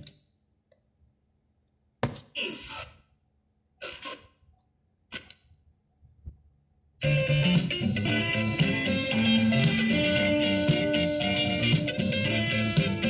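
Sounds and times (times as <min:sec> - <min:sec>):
guitar music on radio: 0:07.0 - 0:13.0.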